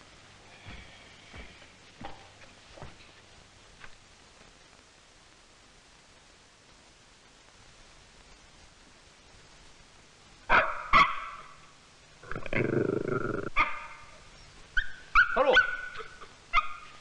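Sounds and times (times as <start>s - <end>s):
dog barking: 10.5s - 11.6s, 13.6s - 14.1s, 14.8s - 17.0s
dog yelping: 14.8s - 17.0s.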